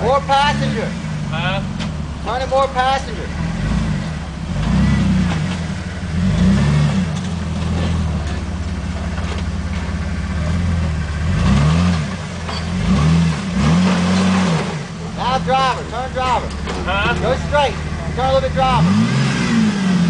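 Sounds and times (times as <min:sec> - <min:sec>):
engine working under load: 0:00.0 - 0:20.0.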